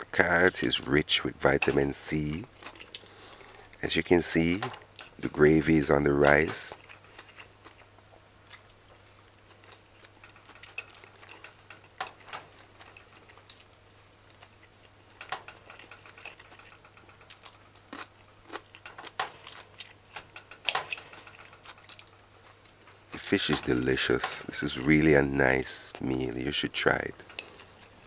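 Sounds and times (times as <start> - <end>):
chewing: 2.4 - 3.8, 6.2 - 25.1, 27.2 - 28.0.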